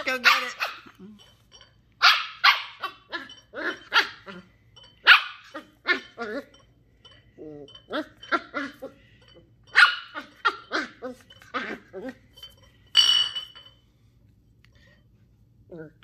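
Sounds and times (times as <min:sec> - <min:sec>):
puppy barking: 0:00.1 - 0:01.0, 0:02.0 - 0:04.4, 0:05.0 - 0:06.4, 0:09.7 - 0:11.8.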